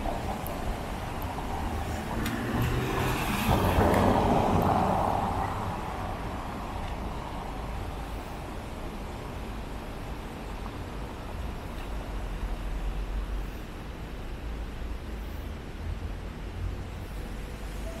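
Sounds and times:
car tyres hissing on wet asphalt: 0:00.0 - 0:18.0
traffic noise: 0:00.0 - 0:18.0
light ticks: 0:02.2 - 0:02.7.

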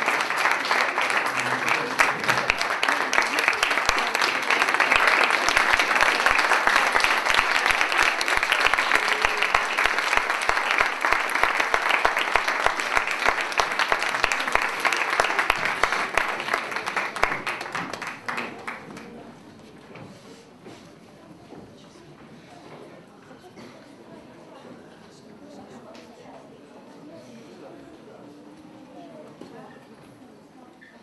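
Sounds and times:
audience applauding: 0:00.0 - 0:19.2.

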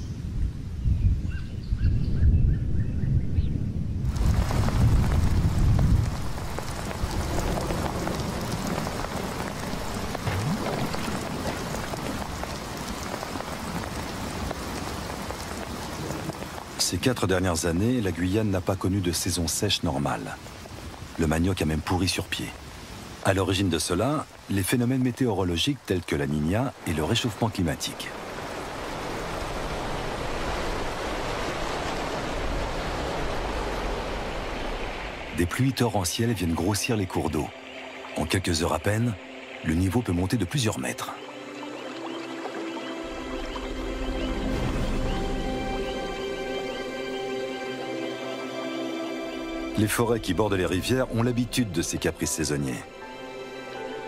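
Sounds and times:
low rumble of thunder: 0:00.2 - 0:12.3
heavy rain on leaves: 0:04.0 - 0:35.4, 0:41.2 - 0:54.0
river rapids rushing: 0:23.2 - 0:35.5.

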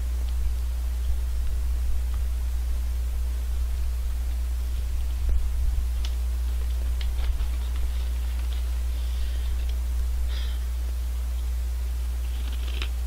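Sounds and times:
low electrical hum: 0:00.0 - 0:13.0
chips crunching: 0:12.2 - 0:13.0.

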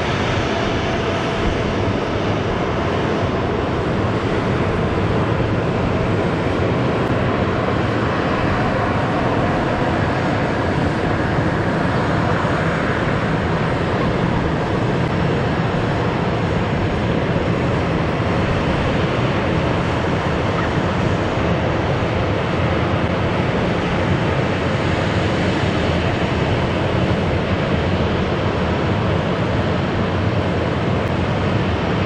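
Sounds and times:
jet engines idling: 0:00.0 - 0:32.0.

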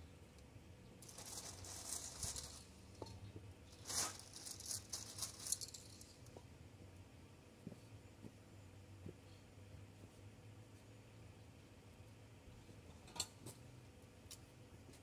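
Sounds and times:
plastic bag rustling: 0:01.0 - 0:03.1, 0:03.7 - 0:06.2
spray paint cans rattling: 0:01.0 - 0:06.3.

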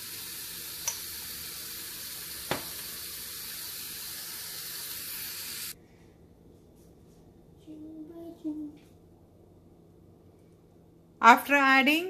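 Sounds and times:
chicken sizzling in a pan: 0:00.0 - 0:05.8.

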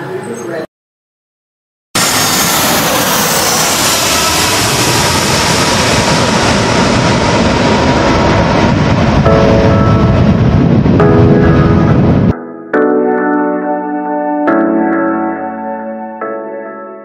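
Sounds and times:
jet engine noise: 0:02.0 - 0:12.4.

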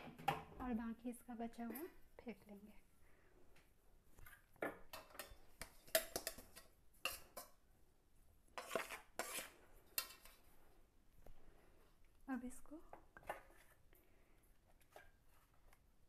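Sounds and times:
steel kitchenware clanking: 0:04.6 - 0:07.6.

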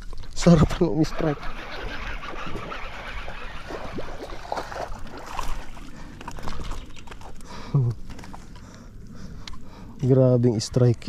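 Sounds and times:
fishing reel reeling in: 0:00.9 - 0:04.6
fish thrashing and splashing water: 0:01.4 - 0:08.6.

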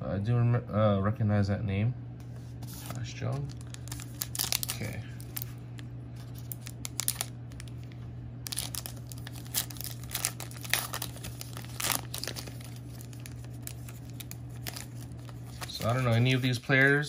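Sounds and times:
steady low hum: 0:00.0 - 0:17.0
plastic wrapper crinkling and tearing: 0:03.4 - 0:17.0.

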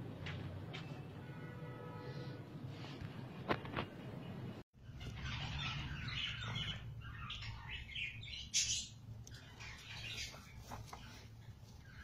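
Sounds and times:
parakeet chicks begging calls: 0:04.8 - 0:10.6.

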